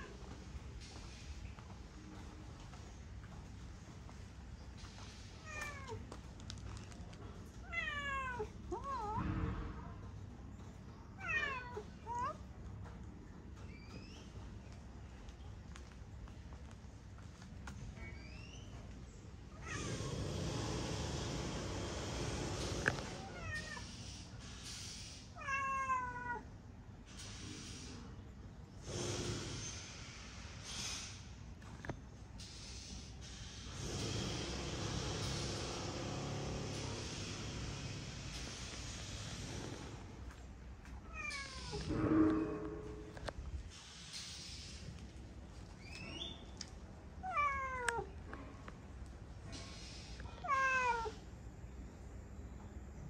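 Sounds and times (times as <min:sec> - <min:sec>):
brief low rumble: 0:08.8 - 0:10.9
cat meowing: 0:50.4 - 0:51.2.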